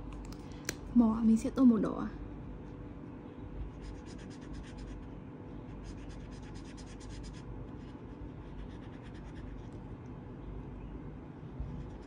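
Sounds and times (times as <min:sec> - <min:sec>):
steady low hum: 0:00.0 - 0:12.0
marker scratching on paper: 0:03.7 - 0:05.2, 0:05.8 - 0:09.8, 0:11.7 - 0:12.0.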